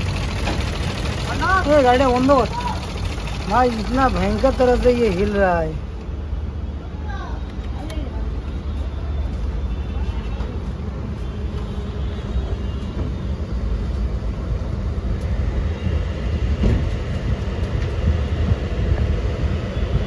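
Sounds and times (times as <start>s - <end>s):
car engine idling roughly and misfiring: 0.0s - 5.8s.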